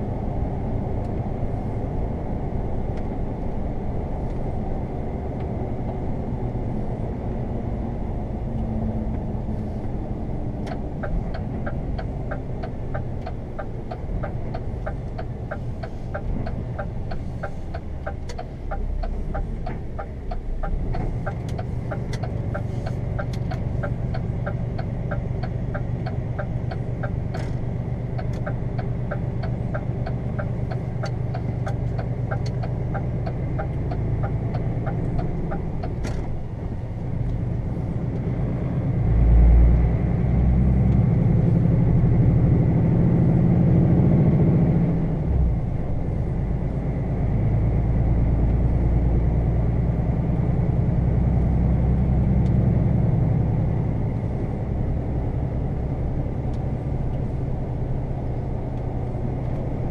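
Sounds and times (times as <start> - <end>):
truck diesel engine running: 0.0 - 39.0
turn-signal indicator clicking: 10.6 - 36.3.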